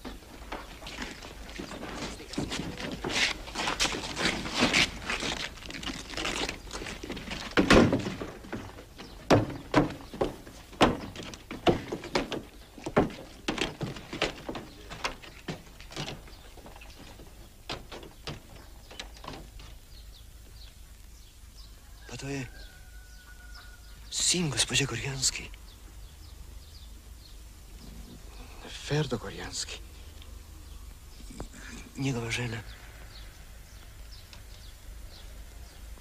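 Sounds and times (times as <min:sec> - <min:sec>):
irregular knocks and thuds: 0:00.0 - 0:20.6.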